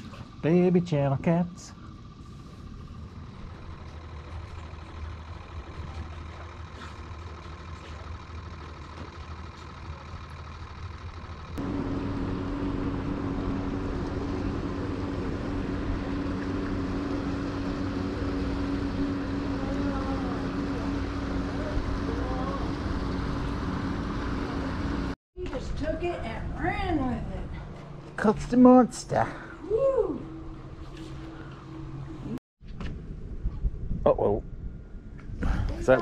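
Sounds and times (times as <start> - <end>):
steady low drone: 0.0 - 25.2
engine humming: 0.0 - 33.8.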